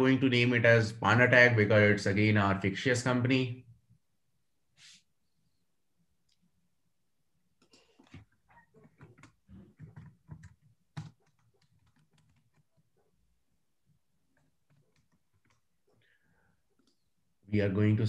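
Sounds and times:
typing on computer keyboard: 8.8 - 12.9, 14.3 - 15.7.

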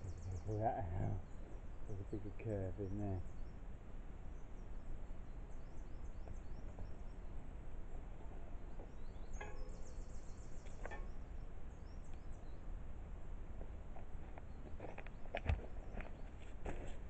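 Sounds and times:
faint high chirps: 8.8 - 12.6.

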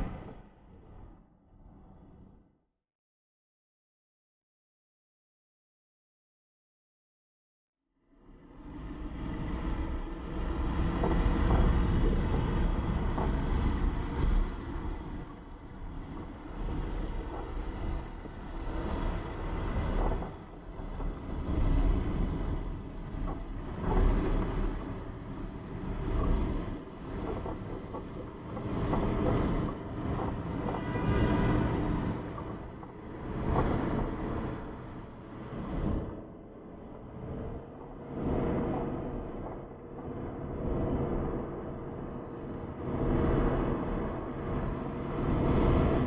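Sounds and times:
vehicle driving on road: 8.5 - 46.0
wind noise: 9.2 - 46.0.

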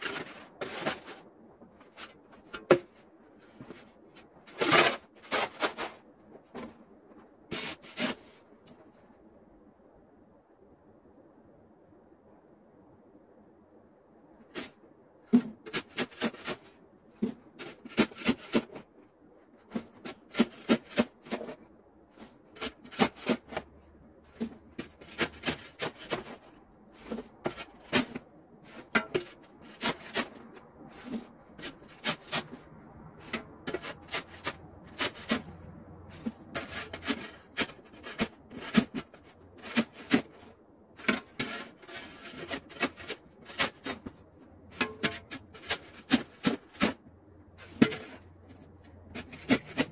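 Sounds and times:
snow shovel scraping packed snow: 4.5 - 6.0, 7.5 - 8.4, 36.1 - 44.1.

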